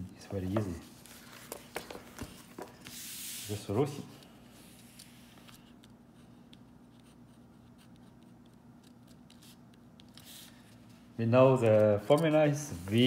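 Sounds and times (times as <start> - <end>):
faint steady hum: 0.0 - 13.0
pen scratching on paper: 6.8 - 10.4.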